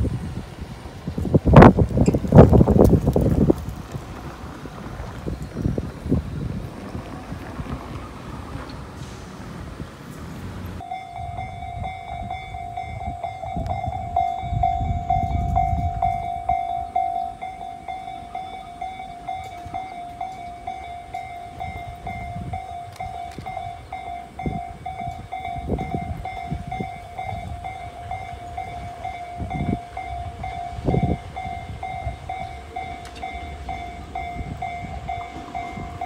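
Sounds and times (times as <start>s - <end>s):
level-crossing bell dinging: 10.8s - 36.0s.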